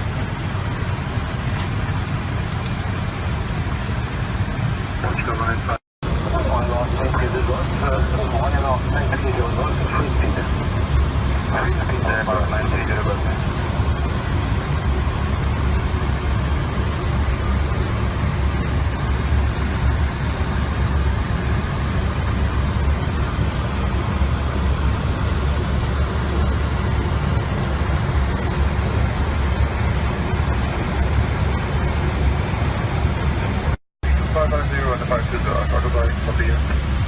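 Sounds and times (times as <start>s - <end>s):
airliner cabin rumble: 0.0s - 37.0s.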